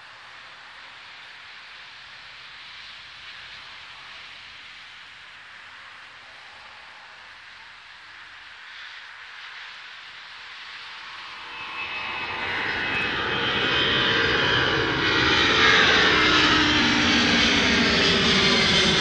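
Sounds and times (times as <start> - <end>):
jet engines at take-off power: 0.0 - 19.0
falling jet whine: 10.4 - 19.0.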